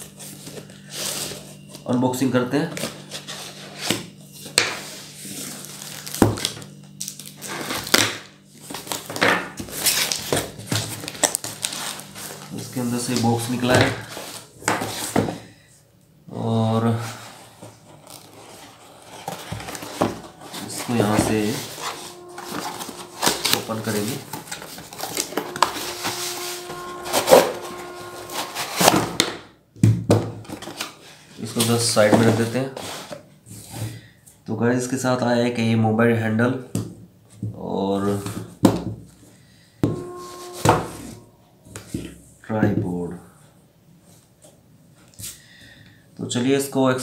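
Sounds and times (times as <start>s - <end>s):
cardboard rustling and scraping: 17.0s - 29.3s.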